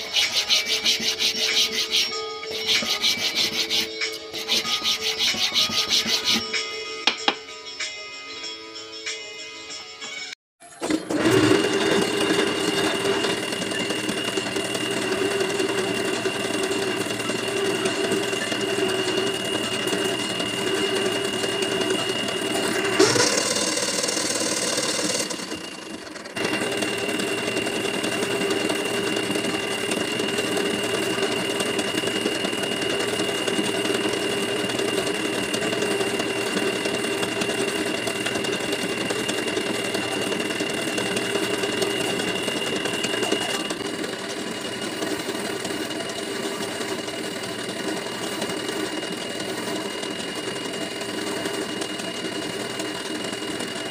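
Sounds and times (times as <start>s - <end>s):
harsh rasp: 0.0s - 6.6s
buffing wheel high whine: 0.0s - 7.4s, 11.2s - 53.9s.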